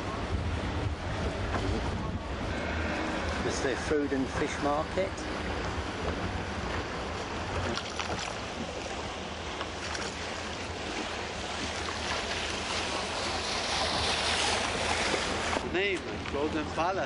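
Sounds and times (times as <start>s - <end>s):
water sloshing against boat: 0.0s - 17.0s
wooden oar strokes in water: 5.6s - 16.3s.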